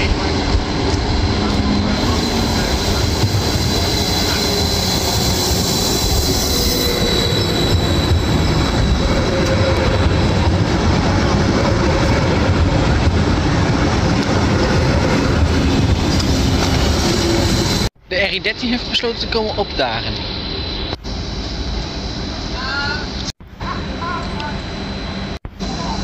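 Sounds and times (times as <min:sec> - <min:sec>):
low train whine: 0:00.0 - 0:26.0
train wheels rumbling on rail: 0:00.0 - 0:26.0
high thin squeal: 0:01.6 - 0:10.1.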